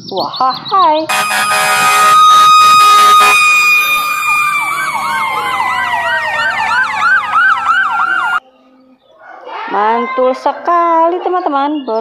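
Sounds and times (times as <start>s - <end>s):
steady siren winding down: 1.1s - 8.4s
yelping siren: 1.1s - 8.4s.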